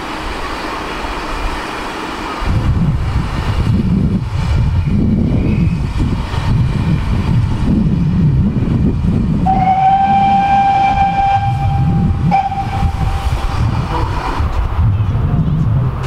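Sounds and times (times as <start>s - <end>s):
steam locomotive whistle blast: 9.4s - 13.4s
continuous low rumble: 11.2s - 16.0s.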